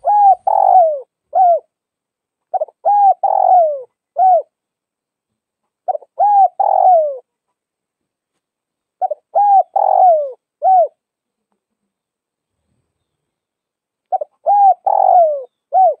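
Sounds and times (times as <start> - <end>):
dove cooing: 0.0 - 1.8, 2.5 - 4.6, 5.8 - 7.3, 9.0 - 11.0, 14.1 - 16.0.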